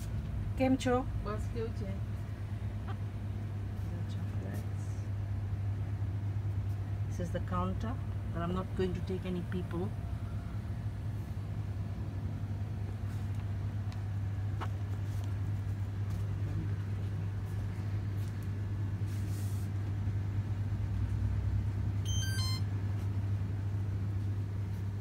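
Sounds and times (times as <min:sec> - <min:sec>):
low electrical hum: 0:00.0 - 0:25.0
high electronic beeps: 0:22.1 - 0:22.6.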